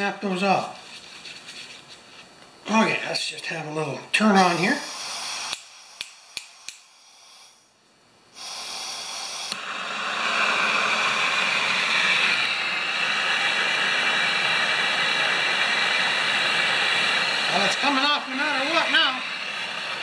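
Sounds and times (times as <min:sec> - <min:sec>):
gas torch flame hissing: 0:02.6 - 0:20.0
torch igniter clicks: 0:05.4 - 0:06.9, 0:09.4 - 0:09.7.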